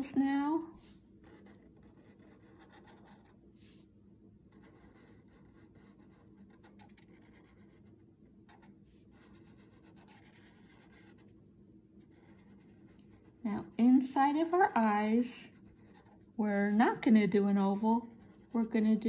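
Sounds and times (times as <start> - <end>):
marker scratching on paper: 0.8 - 3.8, 4.5 - 11.3, 12.0 - 13.4.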